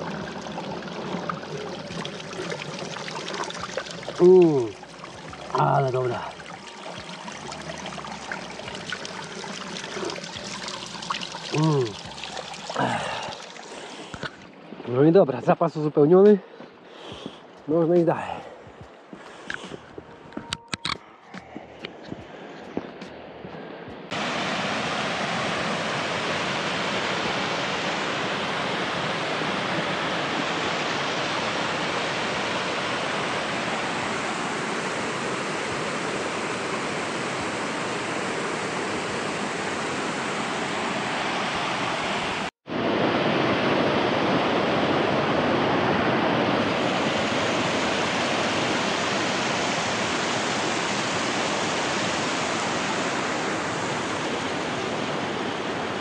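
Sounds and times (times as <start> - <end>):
mountain stream rushing: 0.0 - 20.5, 24.1 - 56.0.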